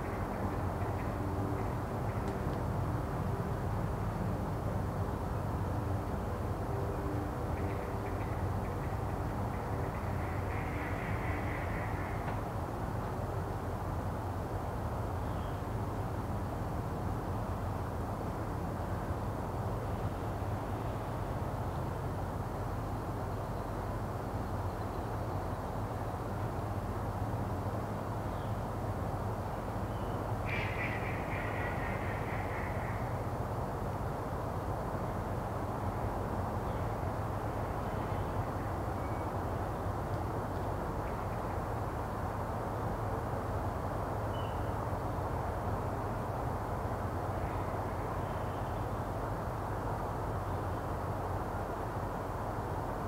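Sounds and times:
harsh distant bird call: 29.9 - 33.2.

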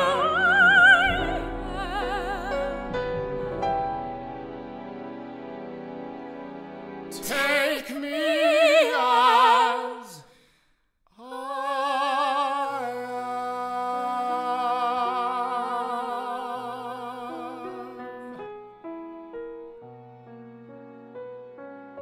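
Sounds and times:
person singing with vibrato: 0.0 - 3.7, 7.1 - 10.4, 11.1 - 18.4
sustained accompaniment chords: 0.0 - 7.2.

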